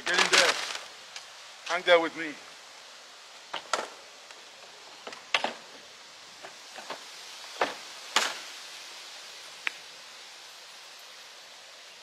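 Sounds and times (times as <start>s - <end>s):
knocks and rustles of paper bag: 0.0s - 0.9s.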